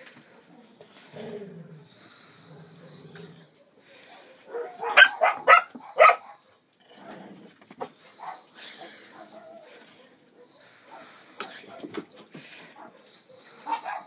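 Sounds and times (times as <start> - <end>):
small dog growling: 1.0 - 3.6, 6.8 - 7.7
small dogs yapping barks: 4.3 - 6.5, 8.2 - 14.0.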